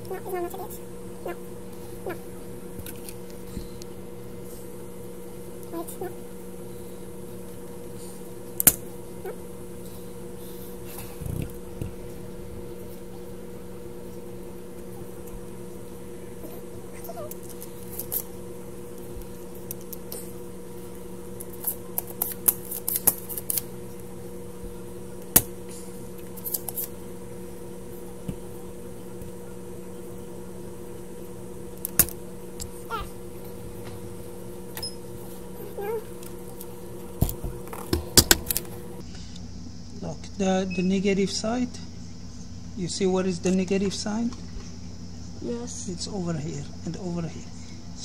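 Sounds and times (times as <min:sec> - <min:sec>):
electrical hum: 0:00.0 - 0:48.0.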